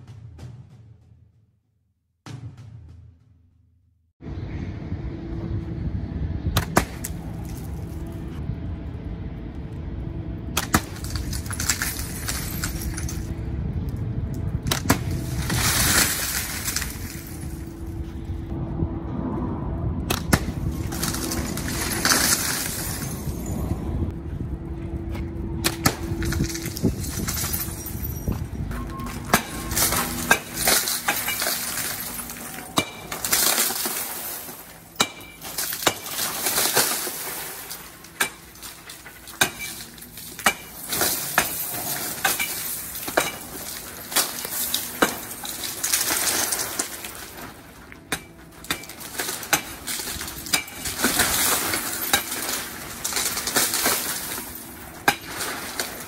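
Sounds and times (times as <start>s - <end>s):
plate glass smashing: 10.8s - 13.3s, 15.4s - 17.6s, 21.0s - 23.5s, 26.2s - 47.3s, 48.1s - 56.0s
glass shards clattering and tinkling: 11.0s - 13.3s, 15.4s - 17.8s, 20.9s - 23.8s, 26.2s - 47.3s, 48.7s - 56.0s.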